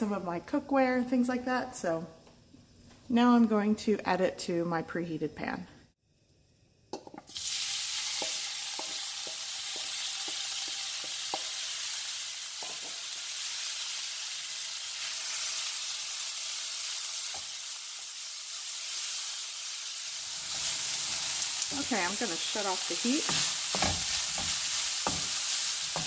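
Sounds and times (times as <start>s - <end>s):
meat sizzling in a pan: 6.9s - 26.0s.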